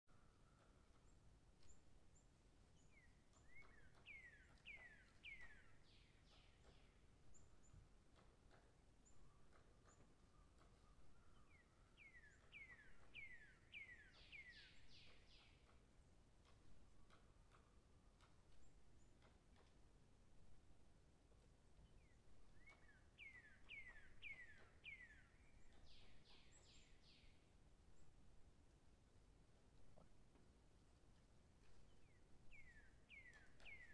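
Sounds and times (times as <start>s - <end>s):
low background hiss: 10.2s - 33.9s.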